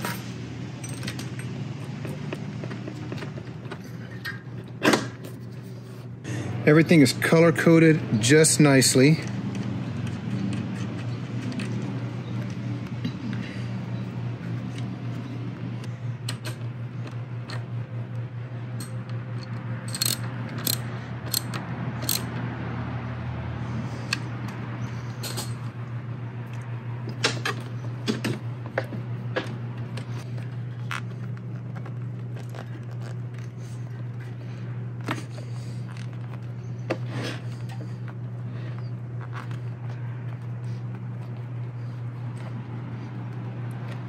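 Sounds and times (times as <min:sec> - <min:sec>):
steady low hum: 0:00.0 - 0:44.0
small metallic clicks and clinks: 0:18.8 - 0:22.3.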